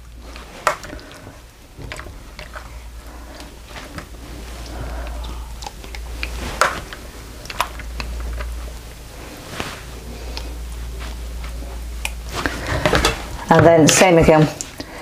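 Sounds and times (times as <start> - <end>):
low hum: 0.0 - 13.8.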